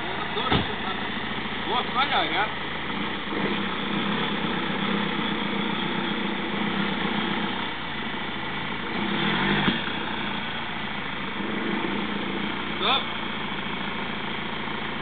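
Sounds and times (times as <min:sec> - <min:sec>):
car engine running at low speed: 0:00.0 - 0:15.0
low thump: 0:00.4 - 0:00.9.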